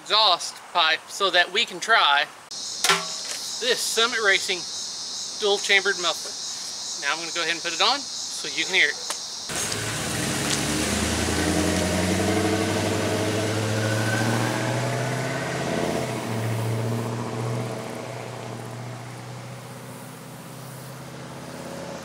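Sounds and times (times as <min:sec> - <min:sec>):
truck exhaust accelerating: 0:09.5 - 0:22.0.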